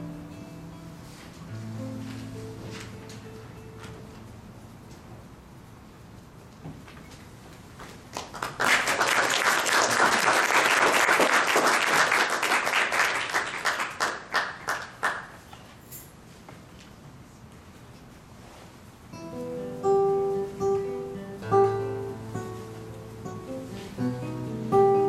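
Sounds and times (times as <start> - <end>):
small audience applauding: 7.8 - 15.6.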